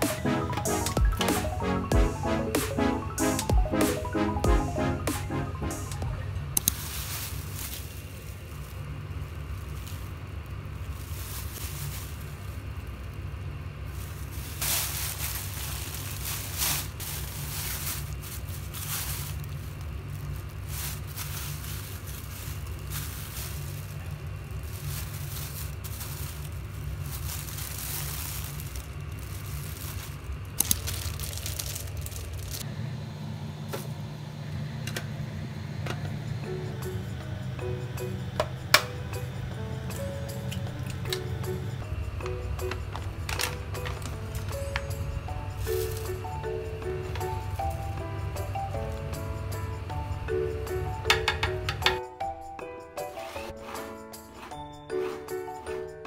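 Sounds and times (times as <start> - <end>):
low hum: 0.0 - 6.7, 31.5 - 50.3
plastic bags rustling: 6.6 - 32.7, 38.3 - 50.2.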